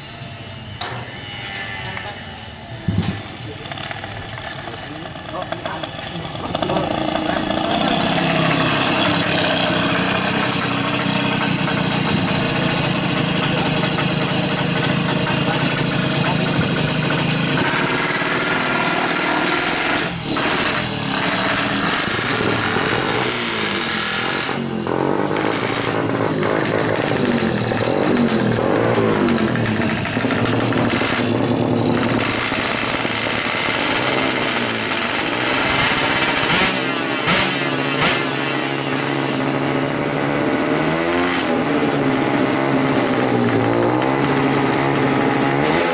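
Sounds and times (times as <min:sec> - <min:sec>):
two-stroke engine revving: 0:00.0 - 0:45.9.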